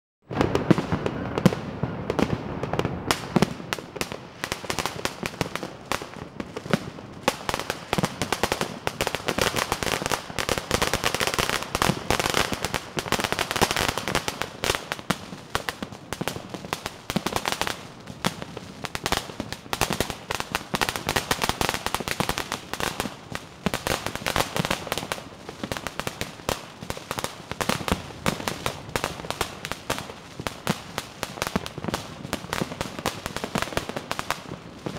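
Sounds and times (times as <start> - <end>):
firecrackers crackling and banging: 0.3 - 34.9.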